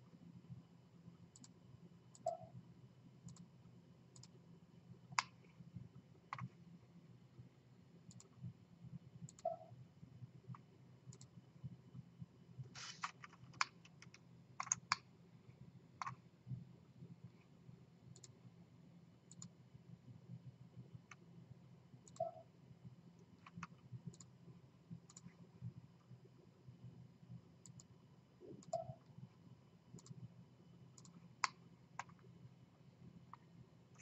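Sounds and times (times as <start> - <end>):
faint low hum: 0.0 - 34.0
mouse buttons clicking: 1.3 - 2.6, 9.2 - 9.8, 12.8 - 15.1, 18.1 - 18.4, 19.3 - 19.5, 22.0 - 22.5, 23.3 - 24.3, 25.0 - 25.4, 27.6 - 29.1, 29.9 - 30.2, 31.0 - 32.3.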